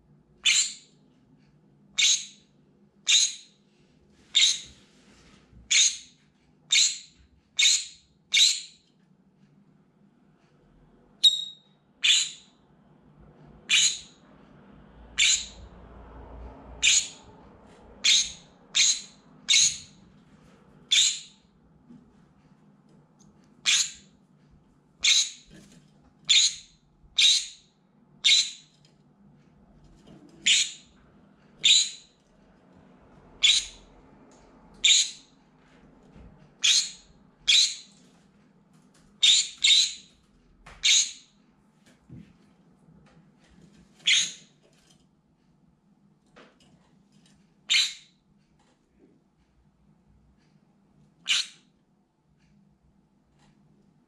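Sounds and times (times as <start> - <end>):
parrot screaming: 0.4 - 0.8, 3.1 - 3.4, 12.0 - 12.5, 13.7 - 14.2, 15.2 - 15.6, 16.8 - 17.2, 18.0 - 20.0, 20.9 - 21.3, 23.6 - 24.0, 25.0 - 25.4, 26.3 - 27.6, 28.2 - 28.7, 30.4 - 30.9, 31.6 - 32.1, 33.4 - 33.8, 34.8 - 35.3, 36.6 - 37.9, 39.2 - 40.1, 40.8 - 41.2, 51.3 - 51.6.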